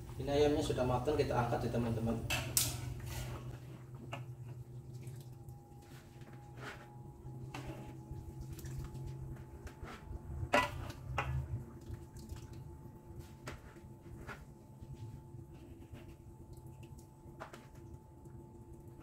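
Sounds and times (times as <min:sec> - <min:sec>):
low steady hum: 0:00.0 - 0:19.0
light dripping: 0:16.4 - 0:19.0.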